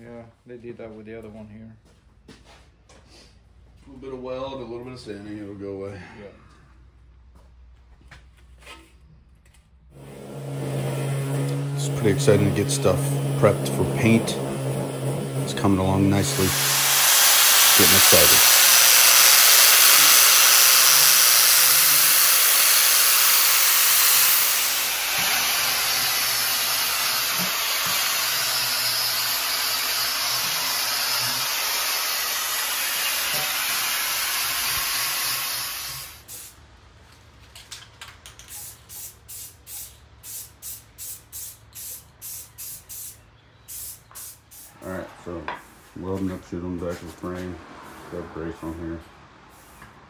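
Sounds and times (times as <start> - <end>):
angle grinder grinding steel: 10.0 - 36.2
spray paint bursts: 10.3 - 36.6, 38.2 - 44.8, 49.5 - 49.8.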